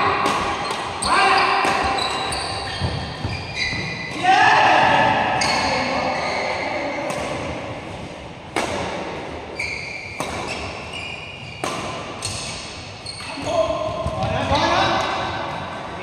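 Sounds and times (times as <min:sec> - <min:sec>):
sports shoes squeaking: 0:00.6 - 0:04.2, 0:05.2 - 0:07.0, 0:09.5 - 0:14.3.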